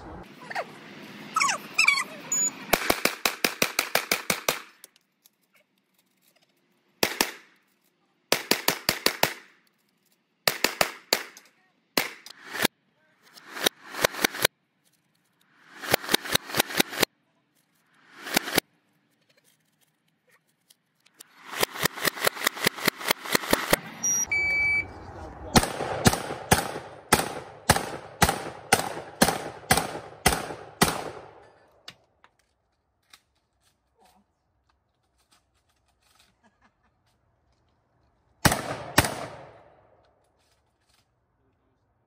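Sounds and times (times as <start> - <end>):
high electronic beep: 1.8 - 2.6, 24.0 - 25.0
shotgun shots: 2.7 - 4.8, 7.0 - 7.5, 8.3 - 9.5, 10.5 - 11.4, 12.0 - 12.7, 13.4 - 14.5, 15.6 - 17.1, 18.1 - 18.6, 21.4 - 23.8, 25.6 - 31.5, 38.4 - 39.8
shots hitting steel plates: 15.7 - 17.1, 25.6 - 31.6.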